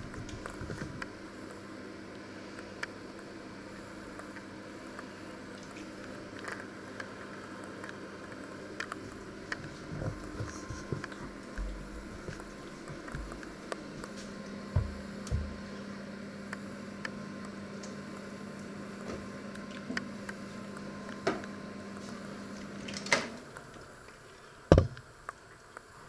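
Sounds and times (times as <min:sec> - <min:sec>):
microwave oven humming: 0:00.0 - 0:26.0.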